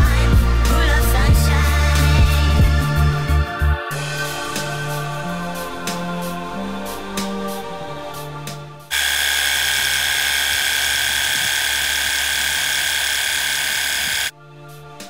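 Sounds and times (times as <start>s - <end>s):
pressure washer spraying soil: 8.9s - 14.3s.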